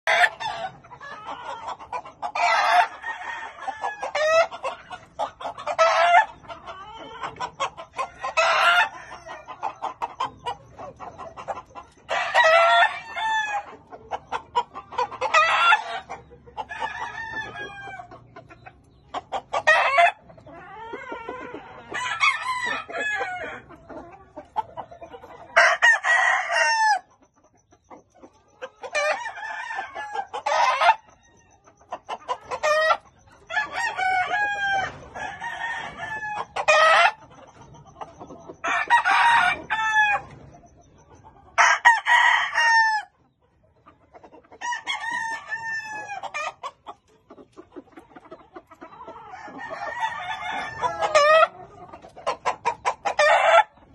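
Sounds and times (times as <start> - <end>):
chickens clucking: 0.0 - 53.9
rooster crowing: 2.4 - 4.5, 12.1 - 13.7, 16.7 - 18.1, 21.9 - 23.6, 33.5 - 37.0, 38.6 - 40.3, 41.6 - 43.1, 44.6 - 46.3, 49.3 - 51.4.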